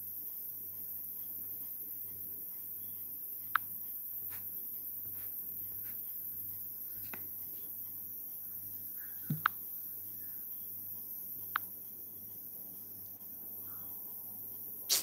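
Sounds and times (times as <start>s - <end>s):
faint ticks: 0.0s - 4.5s, 9.0s - 9.6s, 10.9s - 11.8s
steady high hiss: 0.0s - 15.0s.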